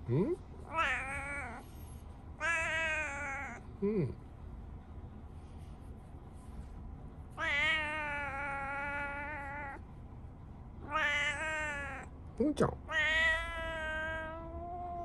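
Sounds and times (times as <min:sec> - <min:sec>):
cat meowing: 0:00.6 - 0:01.7, 0:02.4 - 0:03.6, 0:07.4 - 0:09.8, 0:10.8 - 0:12.1, 0:12.9 - 0:15.0.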